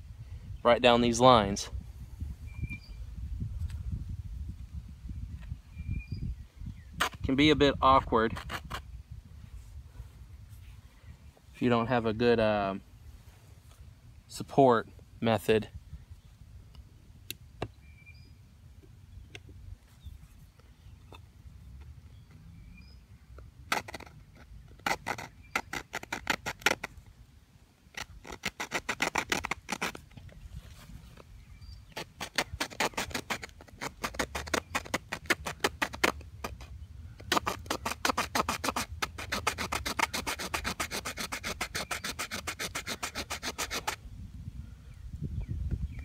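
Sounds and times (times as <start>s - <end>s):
small saw cutting wood: 8.3s - 8.8s, 23.7s - 27.0s, 27.9s - 30.1s, 31.9s - 44.0s.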